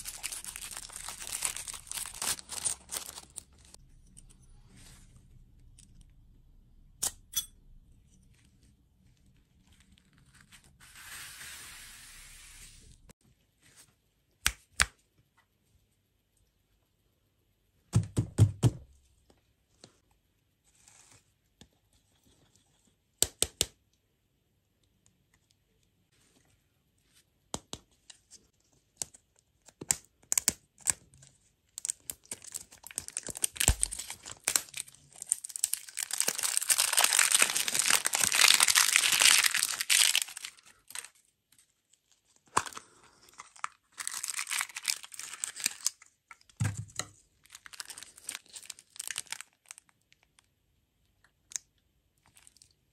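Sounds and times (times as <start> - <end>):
plastic wrapper crinkling and tearing: 0.0 - 3.8, 31.7 - 46.6, 47.4 - 50.5, 52.2 - 52.8.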